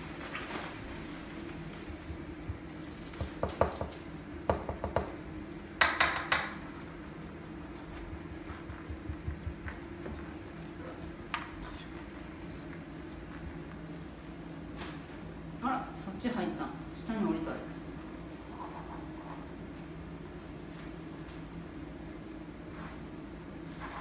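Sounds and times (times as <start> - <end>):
low room hum: 0.0 - 24.0.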